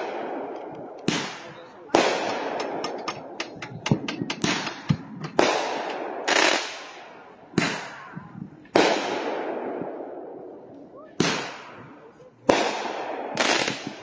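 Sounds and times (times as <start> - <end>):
firework pops: 0.0 - 9.2
firework shells bursting: 0.0 - 10.1, 11.2 - 14.0.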